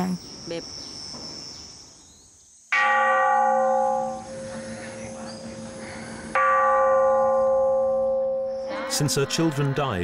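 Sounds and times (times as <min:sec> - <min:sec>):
temple bell ringing: 0:02.8 - 0:10.0.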